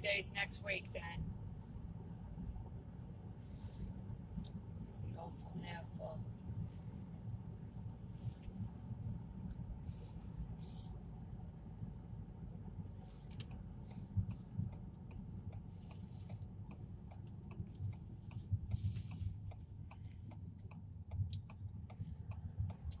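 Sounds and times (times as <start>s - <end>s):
car interior rumble: 0.0s - 23.0s
small irregular clicks: 13.2s - 23.0s.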